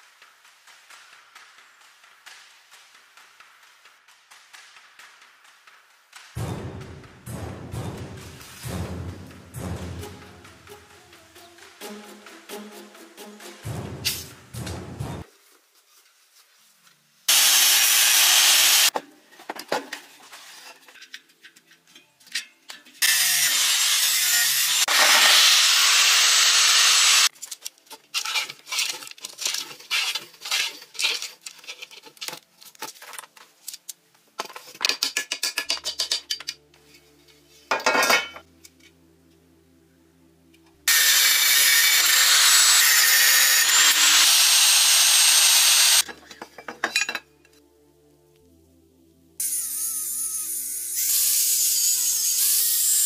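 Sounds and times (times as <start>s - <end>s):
angle grinder cutting metal: 17.3s - 18.9s, 23.0s - 27.3s, 40.9s - 46.1s, 49.4s - 53.0s.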